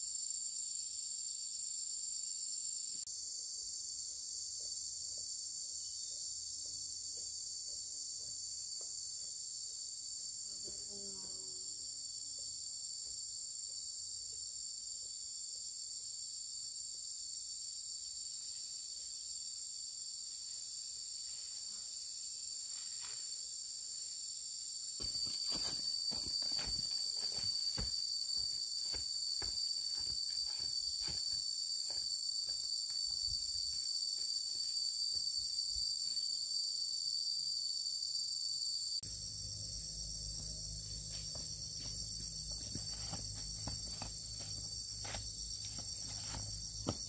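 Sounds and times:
insects chirring: 0:00.0 - 0:47.0.

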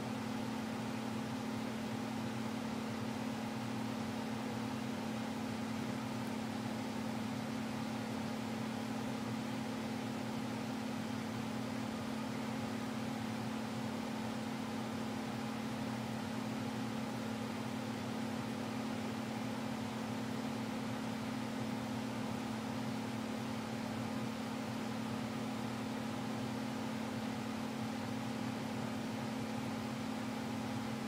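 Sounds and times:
box fan humming: 0:00.0 - 0:31.0.

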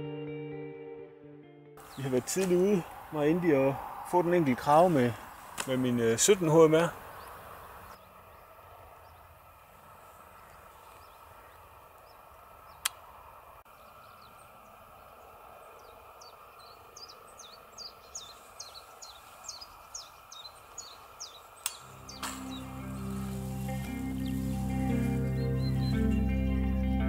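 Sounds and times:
outdoor field ambience: 0:01.8 - 0:27.0
small bird chirping: 0:13.7 - 0:26.3
sharp click: 0:21.6 - 0:22.6.

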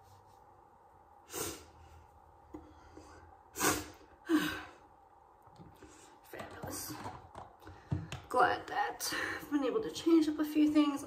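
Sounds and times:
woman sighing: 0:03.8 - 0:04.8.

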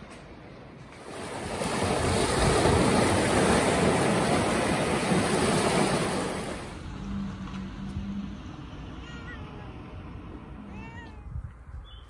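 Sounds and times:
waves washing over rocks: 0:00.9 - 0:06.9.

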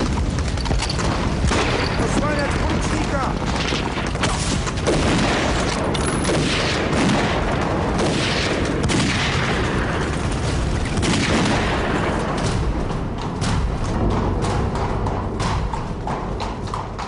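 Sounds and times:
continuous gunfire: 0:00.0 - 0:17.0
explosion booms: 0:01.0 - 0:14.2.

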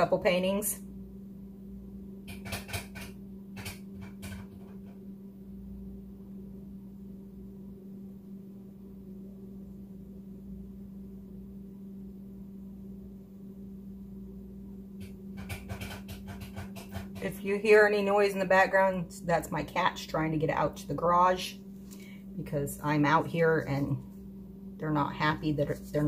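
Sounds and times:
low electrical hum: 0:00.0 - 0:26.0.

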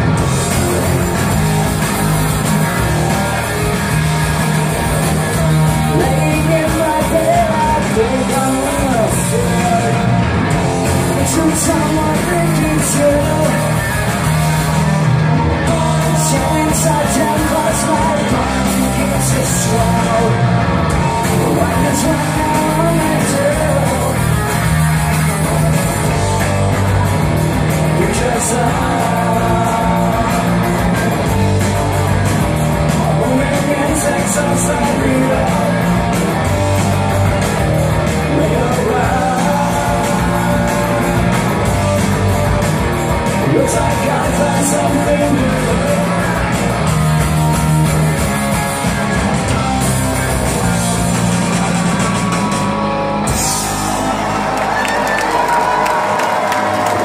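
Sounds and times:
live rock band playing: 0:00.0 - 0:57.0
person singing lead vocal: 0:02.8 - 0:26.6, 0:27.7 - 0:31.1, 0:32.4 - 0:36.6, 0:37.8 - 0:41.7, 0:43.2 - 0:47.5.

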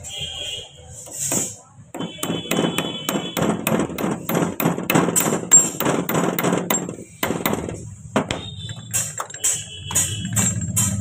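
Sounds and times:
hammer tapping metal pin: 0:01.3 - 0:11.0.

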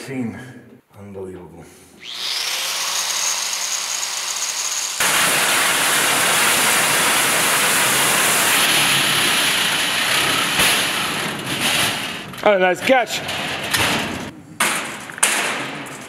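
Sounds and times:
angle grinder cutting metal: 0:02.0 - 0:12.1.

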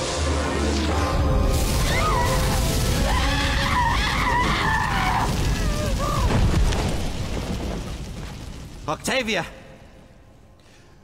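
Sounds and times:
wavering shrieking cry: 0:01.8 - 0:06.2.

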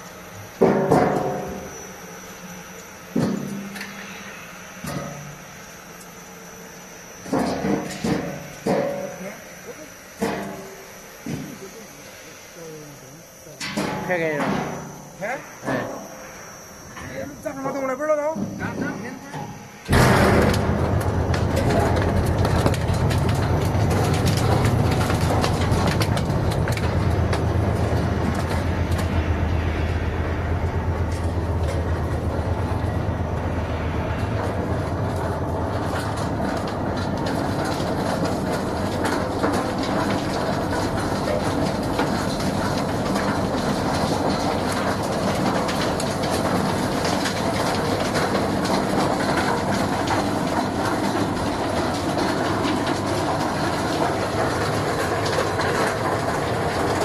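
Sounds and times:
processing machinery clattering: 0:00.0 - 0:57.0
low hum: 0:14.7 - 0:46.8.

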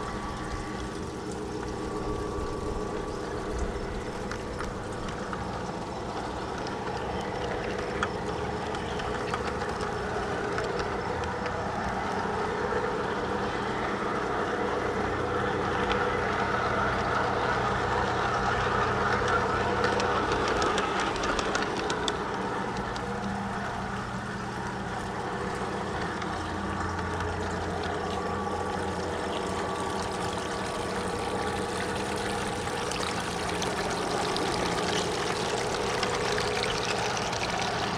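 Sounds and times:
model train rumbling: 0:00.0 - 0:37.9
wheels clicking on rails: 0:00.0 - 0:37.9.

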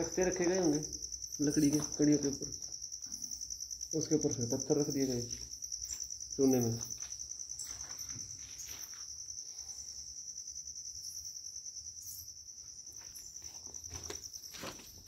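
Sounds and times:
high-pitched insect trill: 0:00.0 - 0:15.0
footstep scuffs: 0:05.3 - 0:09.2, 0:12.9 - 0:15.0.

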